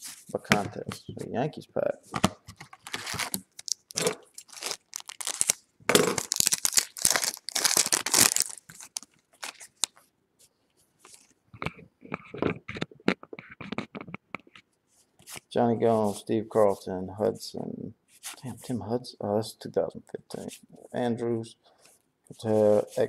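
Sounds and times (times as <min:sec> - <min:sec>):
cards rustling and clicking: 0:02.2 - 0:05.6
wrapper crinkling and tearing: 0:02.7 - 0:10.0.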